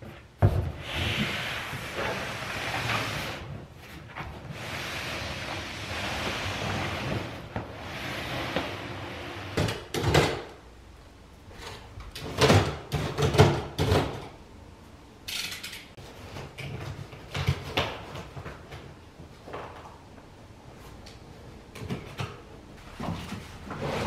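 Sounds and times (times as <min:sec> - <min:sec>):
household bumps and thuds: 0:00.0 - 0:02.1.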